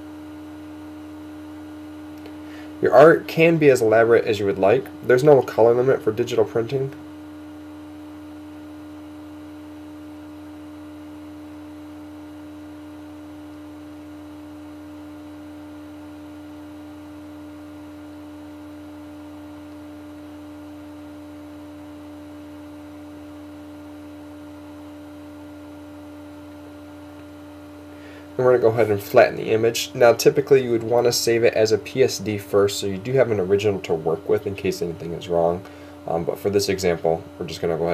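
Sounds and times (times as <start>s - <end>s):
steady tonal hum: 0.0s - 8.5s, 26.5s - 37.9s.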